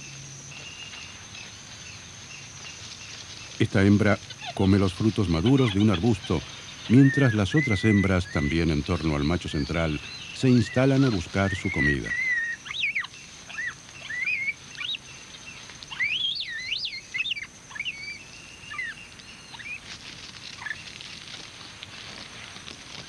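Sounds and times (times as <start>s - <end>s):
high whistled chirps: 4.5s - 15.1s, 15.9s - 19.8s.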